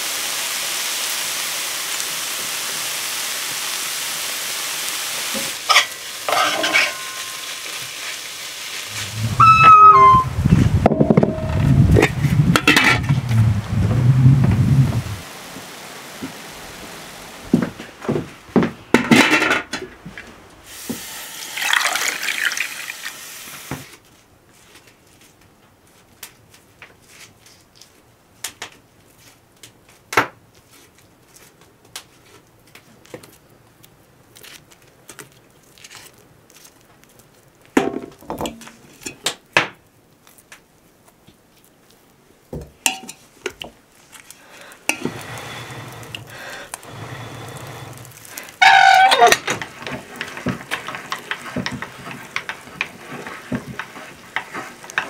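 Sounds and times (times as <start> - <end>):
water pouring into metal pot: 5.3 - 8.0, 20.9 - 23.6, 44.8 - 55.0
steady rushing noise: 10.2 - 17.6.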